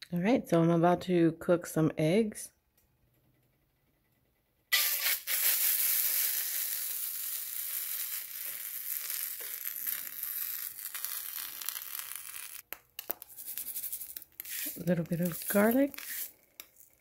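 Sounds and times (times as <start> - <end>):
eggs sizzling in frying pan: 4.7 - 17.0.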